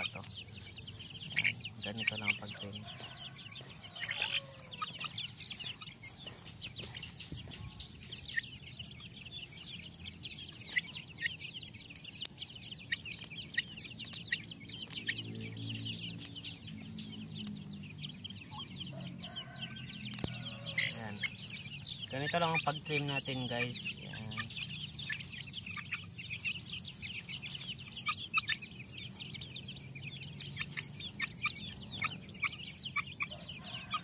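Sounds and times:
chicks peeping and clucking: 0.0s - 34.0s
scissors snipping feathers: 14.0s - 15.1s, 20.1s - 20.5s.

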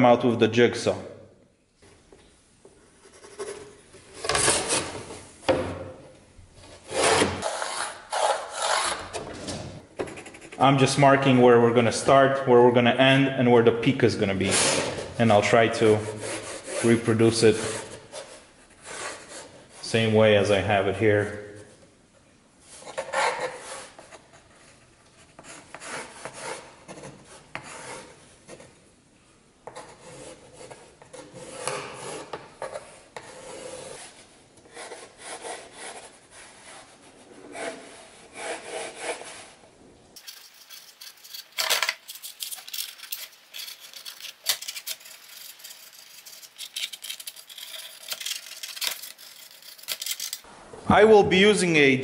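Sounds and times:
pencil scratching on plywood: 10.0s - 10.6s, 16.0s - 19.6s, 22.8s - 28.8s, 29.6s - 39.6s, 42.2s - 50.5s.

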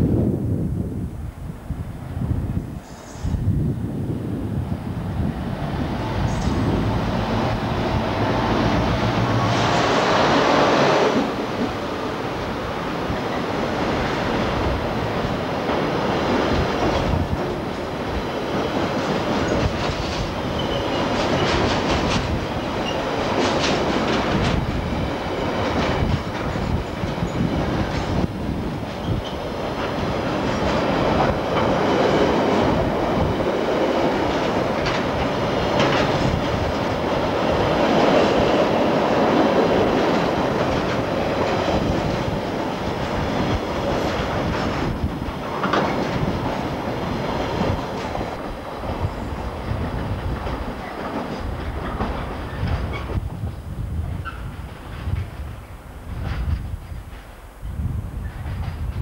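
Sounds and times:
diesel locomotive passing: 1.4s - 59.0s
wheels clattering over rail joints: 15.6s - 48.6s, 49.3s - 53.2s.

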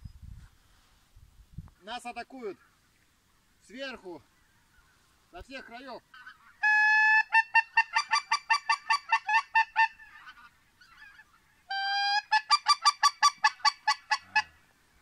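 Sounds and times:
goose call honk and clucks: 5.6s - 14.7s.

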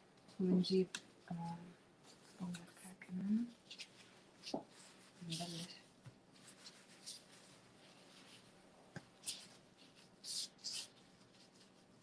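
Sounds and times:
hands rubbing dough on stone: 3.6s - 12.0s.

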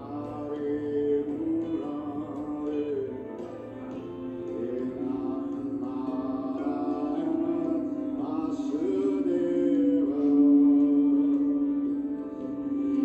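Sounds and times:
person chanting: 0.0s - 13.0s
singing bowls drone: 0.0s - 13.0s.

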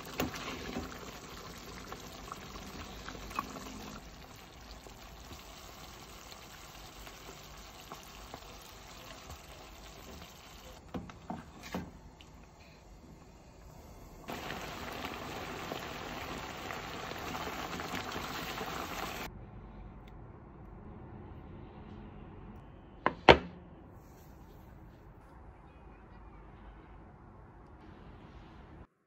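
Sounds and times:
sauce simmering and sizzling: 0.0s - 10.8s, 12.1s - 19.3s.

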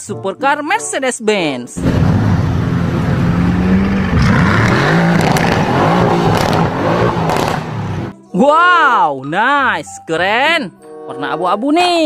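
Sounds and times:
car engine revving: 1.8s - 8.1s.

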